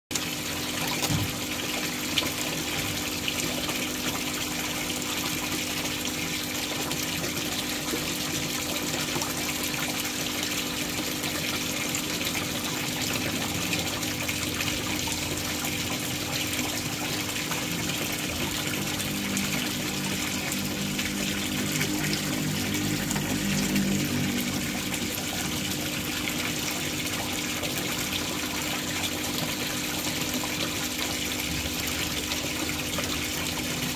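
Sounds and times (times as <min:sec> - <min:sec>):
water pouring into pond: 0:00.1 - 0:33.9.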